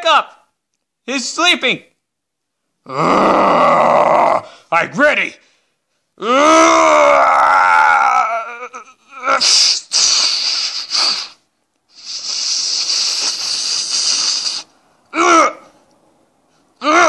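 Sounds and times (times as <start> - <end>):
wavering cartoon yell: 6.2 - 9.5.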